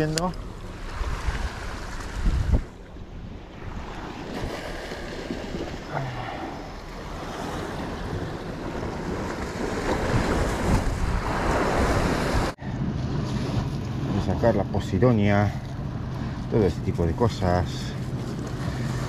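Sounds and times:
sea waves washing against rocks: 0.0s - 14.5s
wind blowing on microphone: 0.8s - 6.0s, 7.4s - 14.4s.

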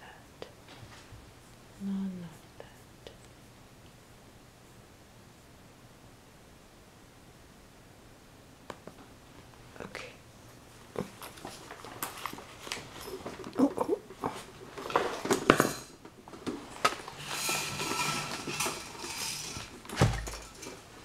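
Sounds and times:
cloth rustling: 10.7s - 21.0s.

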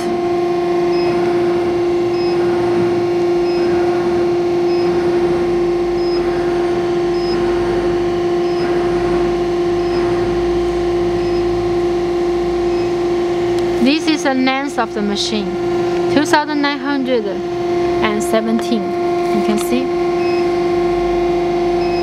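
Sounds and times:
machine carriage low rumble: 0.0s - 16.5s
pipe bending machine humming: 0.0s - 22.0s.

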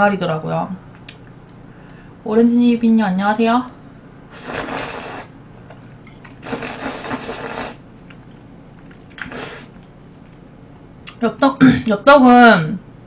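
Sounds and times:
noodle slurping: 4.3s - 5.4s, 6.1s - 10.4s.

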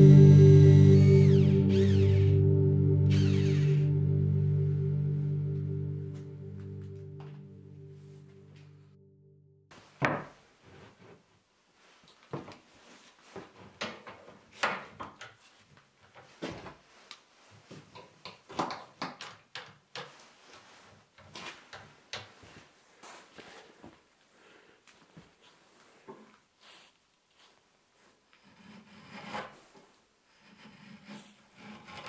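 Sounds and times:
ringing music tone: 0.0s - 9.6s
hand tool strokes on wood: 25.6s - 32.0s.

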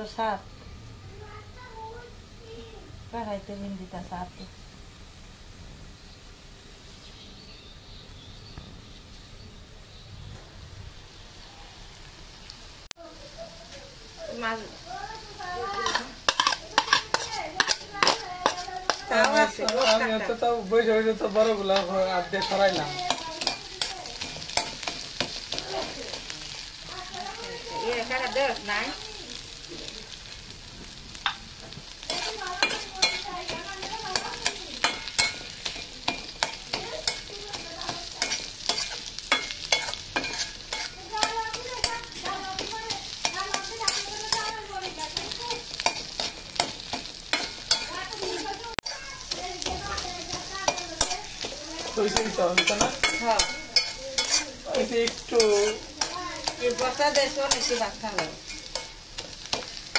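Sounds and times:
food sizzling: 0.0s - 59.9s
spatula scraping a pan: 15.5s - 28.8s, 30.8s - 59.9s.

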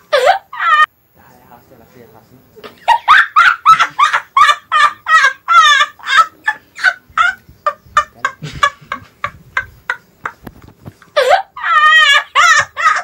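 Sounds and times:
person laughing hard: 2.7s - 10.4s, 11.2s - 13.0s.

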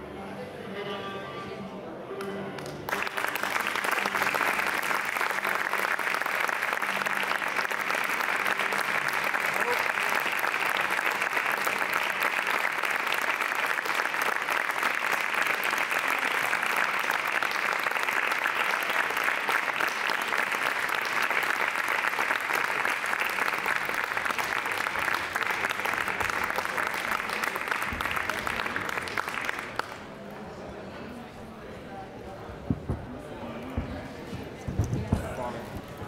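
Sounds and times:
audience applauding: 2.6s - 30.1s.

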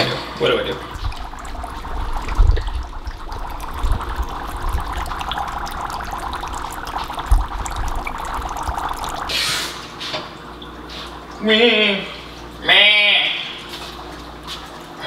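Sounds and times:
dry ice bubbling in water: 0.7s - 9.4s.

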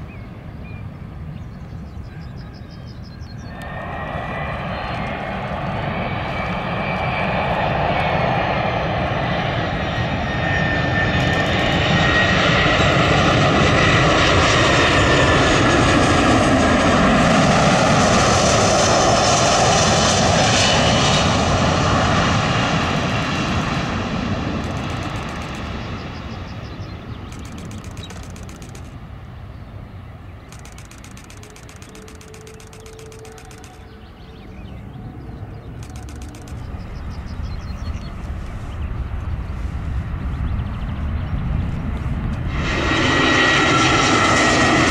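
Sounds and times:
jet airliner engines passing: 0.0s - 44.9s.

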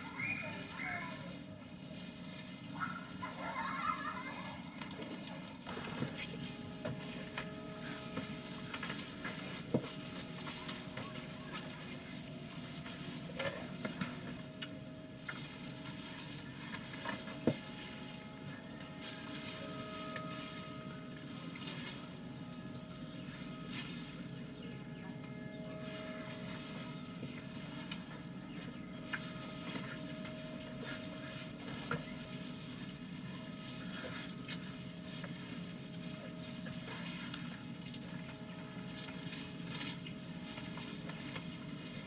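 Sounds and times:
plastic rustling: 0.0s - 42.0s.

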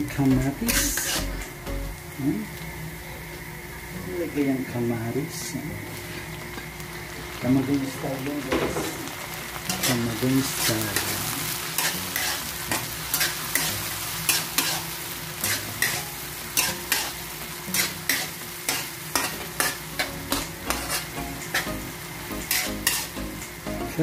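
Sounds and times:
vegetables sizzling in oil: 0.0s - 24.0s
metal spatula scraping wok: 0.6s - 1.4s, 9.7s - 21.8s, 22.4s - 23.2s.

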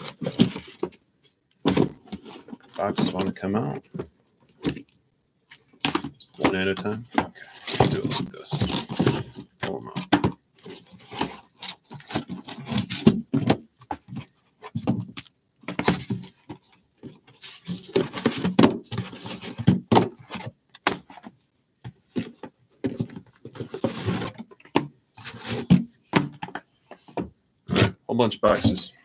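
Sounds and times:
cardboard boxes scraping and sliding: 23.0s - 24.4s, 25.2s - 25.9s.

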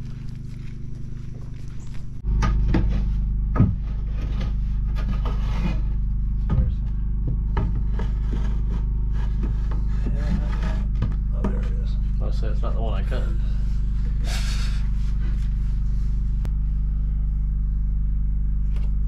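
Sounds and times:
wood scraping and rubbing: 0.0s - 12.2s
steady low hum: 0.0s - 19.0s
wood knocking on wood: 6.4s - 11.7s.

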